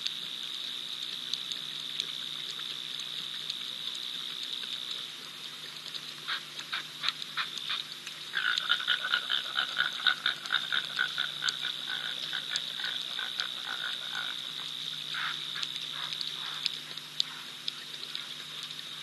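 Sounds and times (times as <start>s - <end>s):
frogs croaking: 6.2s - 19.0s
high-pitched insect chorus: 6.3s - 19.0s.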